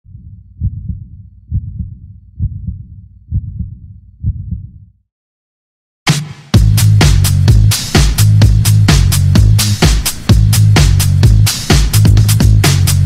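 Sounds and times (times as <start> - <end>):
heartbeat thumps: 0.0 - 5.0, 6.6 - 12.7
electronic dance music: 6.1 - 13.0.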